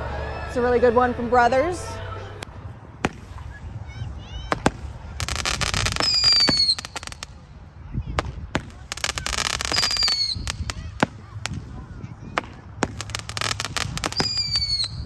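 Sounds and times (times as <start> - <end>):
firework crackling: 2.8 - 15.0
firework pops: 3.0 - 3.5, 4.4 - 7.4, 8.2 - 15.0.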